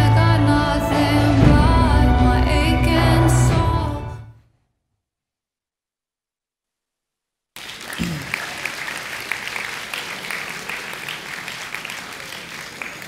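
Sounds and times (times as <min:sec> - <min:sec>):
audience applauding: 0:07.6 - 0:13.0.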